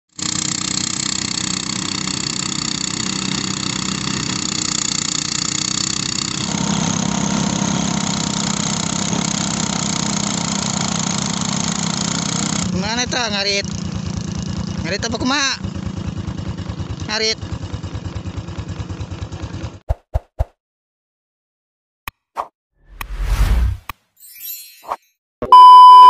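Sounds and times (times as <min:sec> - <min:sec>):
rice thresher engine running: 0:00.2 - 0:19.8.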